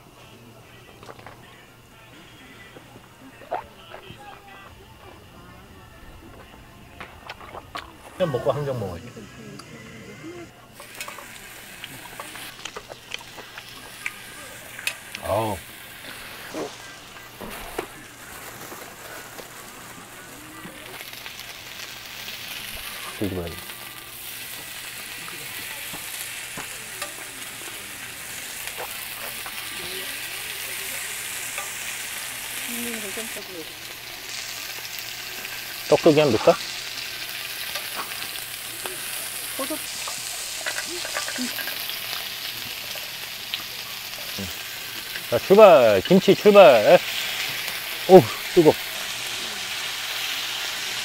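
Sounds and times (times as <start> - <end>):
pork sizzling on a griddle: 0.0 - 9.6, 10.2 - 51.0
metal tongs clicking on pan: 10.8 - 13.3, 27.0 - 27.3, 31.5 - 31.9, 40.0 - 41.9.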